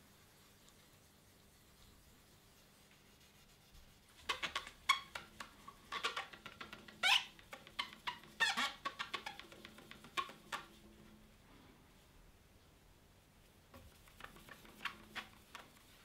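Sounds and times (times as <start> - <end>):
polishing cloth squeaking: 2.6 - 10.9, 13.8 - 16.0.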